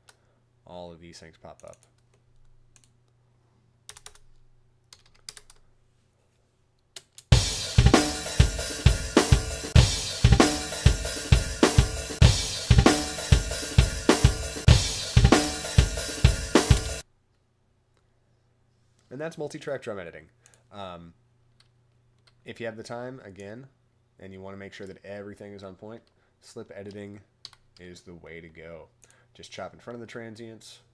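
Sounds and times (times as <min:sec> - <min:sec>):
drum kit groove: 0:07.3 - 0:17.0.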